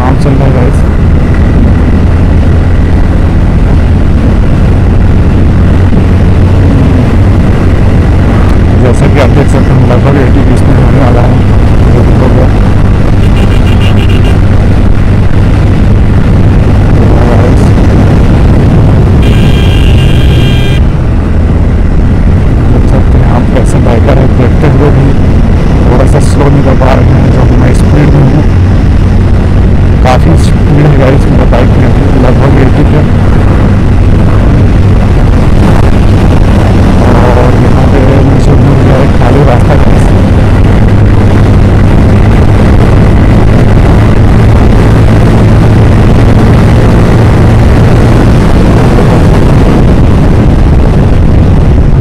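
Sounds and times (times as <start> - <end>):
motorcycle engine hum: 0.0 - 52.0
wind rushing over microphone: 0.0 - 52.0
high-pitched tone: 13.2 - 14.5, 19.1 - 21.0.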